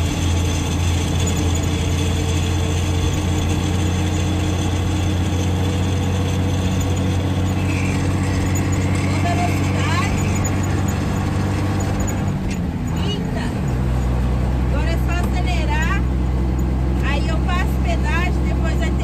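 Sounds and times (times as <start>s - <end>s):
truck diesel engine running: 0.0s - 19.0s.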